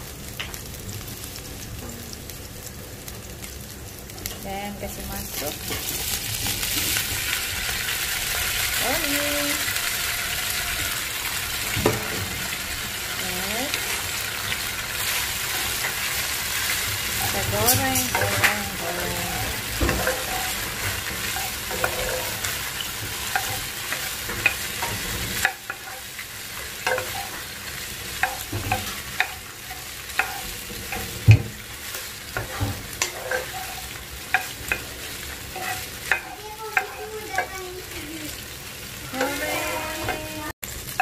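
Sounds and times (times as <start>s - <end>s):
frying sizzle: 0.0s - 41.0s
spatula knocking pan: 17.2s - 26.1s, 28.1s - 31.7s.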